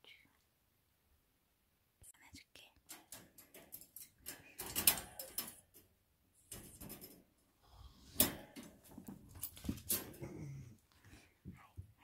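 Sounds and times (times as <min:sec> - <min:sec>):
metal crate door rattling: 0:02.9 - 0:05.8, 0:06.5 - 0:07.3, 0:08.1 - 0:10.2.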